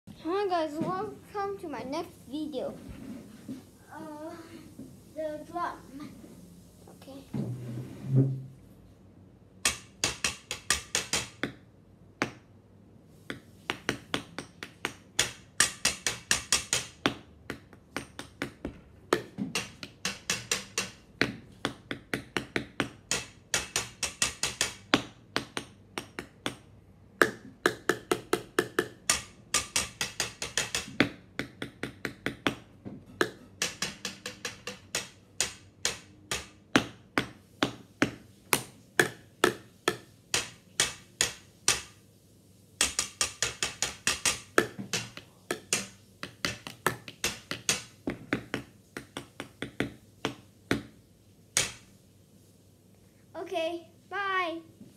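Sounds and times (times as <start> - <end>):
stick tapping on wooden table: 9.6 - 11.6, 13.3 - 42.0, 42.8 - 51.0, 51.6 - 51.9.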